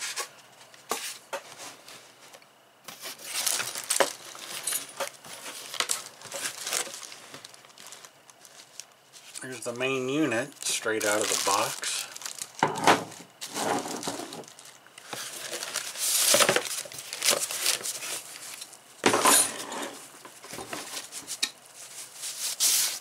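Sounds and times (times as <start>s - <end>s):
cardboard and foam rustling: 0.0s - 18.7s, 20.3s - 23.0s
plastic wrapping crinkling: 2.9s - 18.8s.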